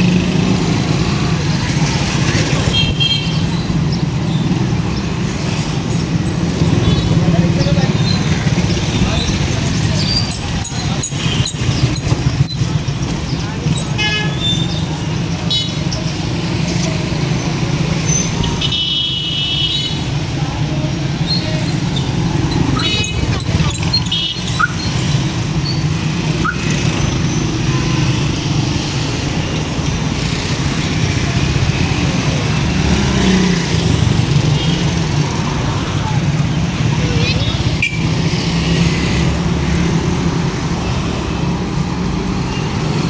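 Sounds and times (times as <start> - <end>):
cars and motorcycles passing: 0.0 - 43.0
motorcycle rickshaw passing: 4.3 - 13.9, 21.1 - 43.0.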